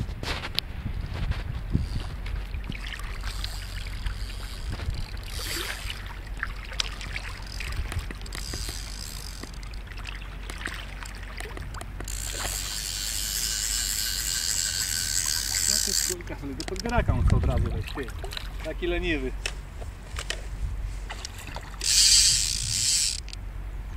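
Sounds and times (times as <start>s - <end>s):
water sloshing in river: 1.4s - 23.4s.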